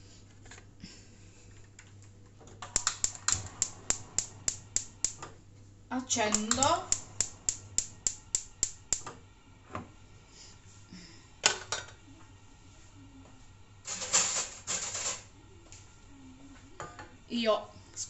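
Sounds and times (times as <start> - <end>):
gas lighter clicking: 2.8 - 5.2, 6.3 - 9.1.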